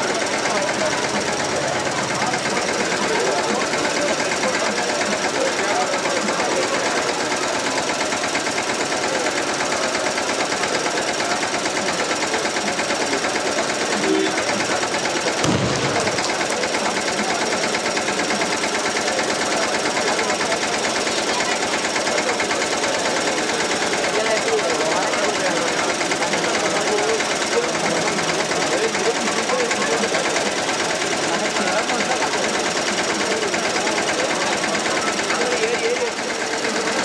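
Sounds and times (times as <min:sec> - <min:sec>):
fast continuous drumming: 0:00.0 - 0:21.2
low thud: 0:15.4 - 0:16.6.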